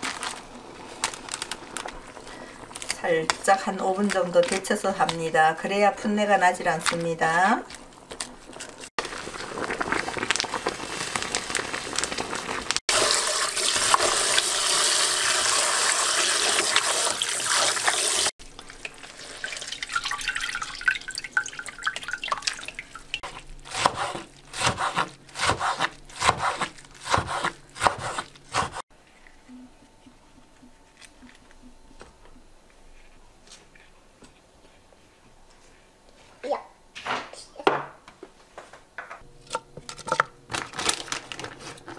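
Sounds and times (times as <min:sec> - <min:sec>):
tap water running into sink: 0:12.9 - 0:23.2.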